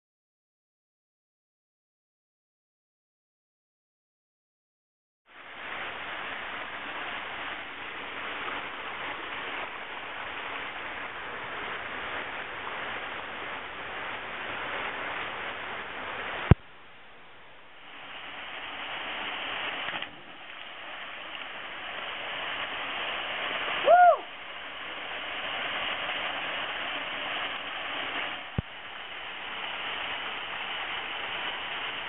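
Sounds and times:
waterfall rushing: 0:05.3 - 0:16.6, 0:17.6 - 0:32.0.

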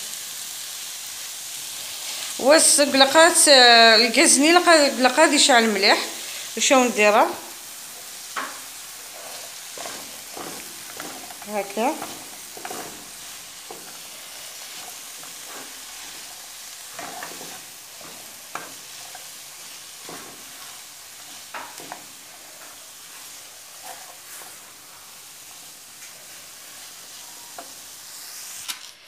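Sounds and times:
greens sizzling in oil: 0:00.0 - 0:29.0
wooden spoon scraping pan: 0:07.9 - 0:24.8.

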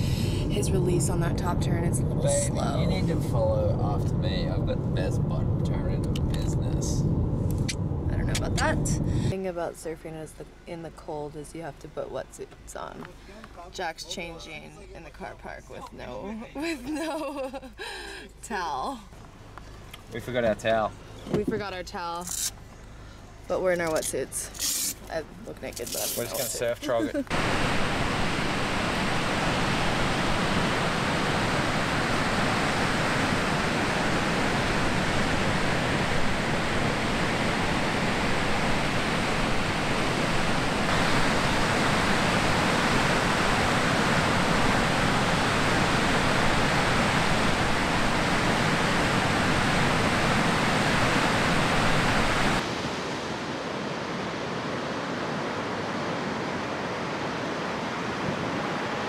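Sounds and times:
ocean waves breaking: 0:26.2 - 0:59.0.

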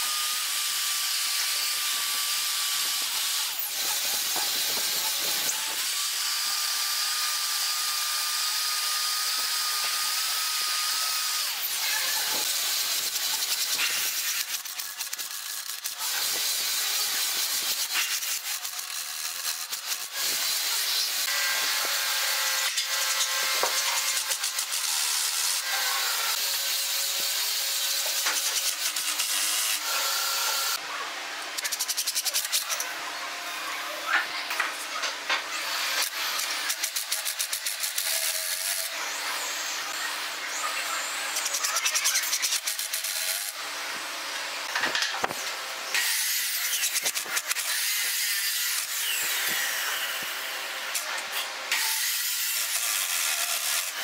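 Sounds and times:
cordless drill running: 0:00.0 - 0:30.8, 0:45.6 - 0:54.0.

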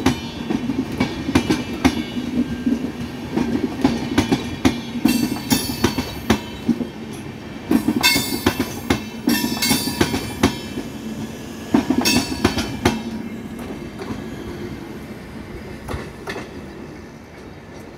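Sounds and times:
train wheels clattering over joints: 0:00.0 - 0:11.0, 0:11.7 - 0:14.3.

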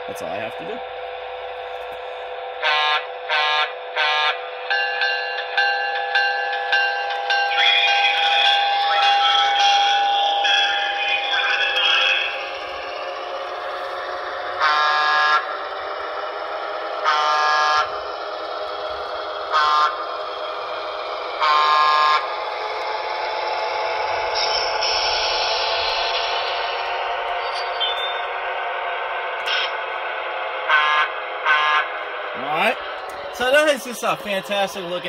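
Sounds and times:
electric locomotive motor hum: 0:00.0 - 0:35.0
train horn: 0:02.6 - 0:04.4, 0:14.6 - 0:15.4, 0:17.0 - 0:17.9, 0:19.5 - 0:20.0, 0:21.4 - 0:22.2, 0:30.7 - 0:31.9.

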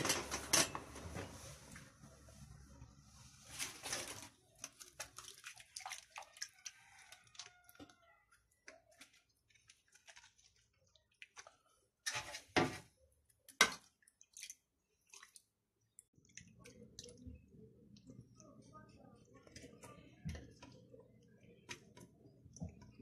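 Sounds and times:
pastry sheets rustling: 0:00.0 - 0:05.4
milk splashing: 0:03.6 - 0:23.0.

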